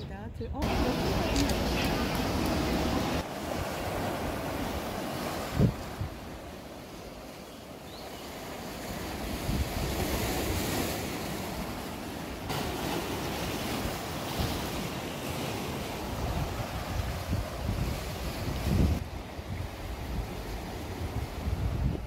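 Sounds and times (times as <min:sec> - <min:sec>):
wind rumbling on microphone: 0:00.0 - 0:07.3, 0:07.9 - 0:11.9, 0:12.8 - 0:22.0
sea waves breaking on rocks: 0:00.6 - 0:22.0.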